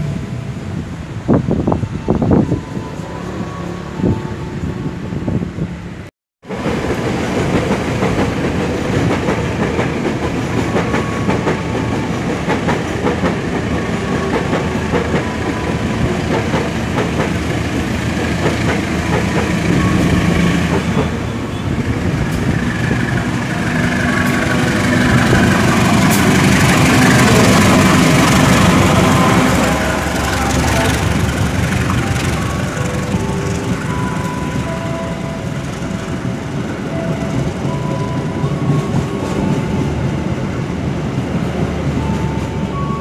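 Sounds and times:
locomotive rumble: 0.0 - 43.0
rail clicks: 6.5 - 43.0
locomotive engine low hum: 17.4 - 37.6.

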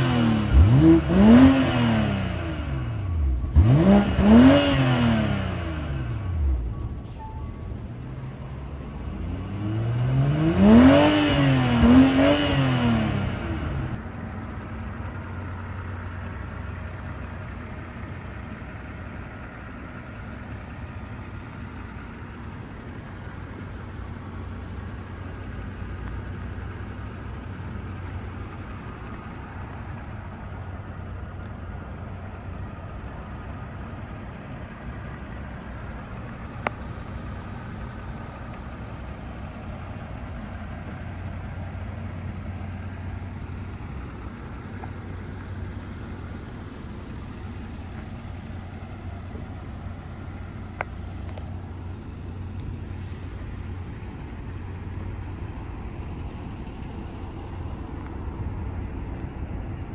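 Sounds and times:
car engine revving and idling: 0.0 - 59.9.

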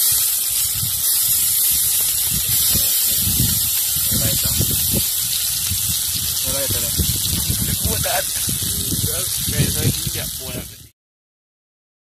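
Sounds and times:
liquid sizzling in hot pot: 0.0 - 10.9.

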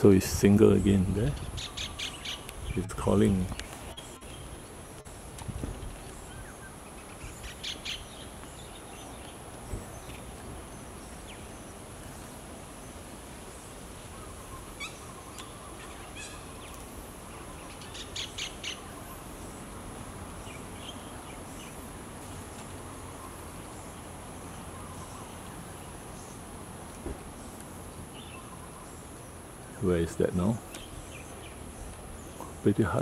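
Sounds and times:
kingfisher calling: 0.8 - 4.7, 14.1 - 19.3.

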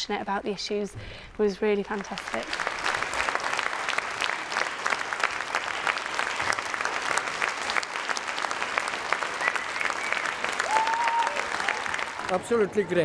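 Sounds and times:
audience applauding: 1.9 - 13.0.

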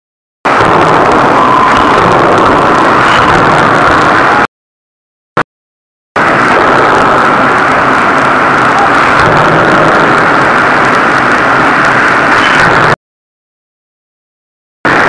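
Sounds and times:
heavy machinery din: 0.5 - 4.5, 6.2 - 13.0.

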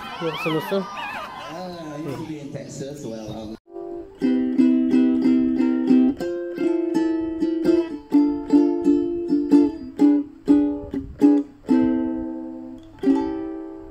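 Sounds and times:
ukulele strumming: 3.7 - 13.9.

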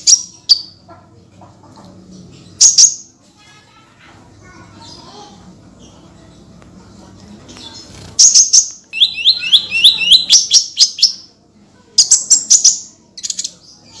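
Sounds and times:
small bird singing high-pitched: 2.4 - 3.1, 7.6 - 11.3, 11.9 - 14.0.

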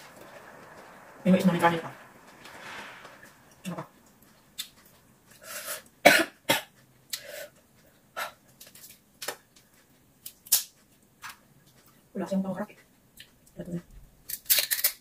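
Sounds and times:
shrimp shells cracking: 14.3 - 15.0.

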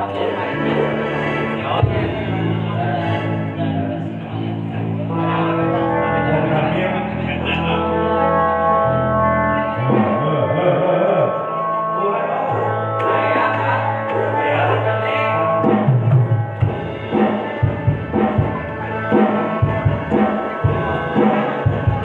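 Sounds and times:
electric guitar: 0.0 - 22.0
keyboard sustained chords: 0.0 - 22.0
low bass line: 0.0 - 22.0.

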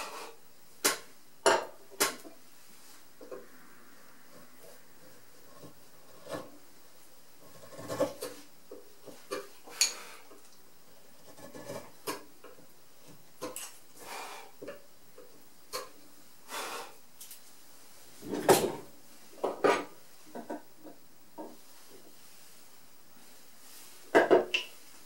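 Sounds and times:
chisel scraping wood: 7.4 - 8.4, 11.1 - 12.2.

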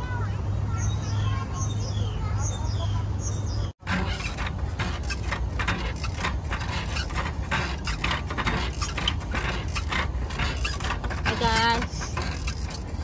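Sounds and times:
spring rider creaking and clinking: 3.8 - 13.0.

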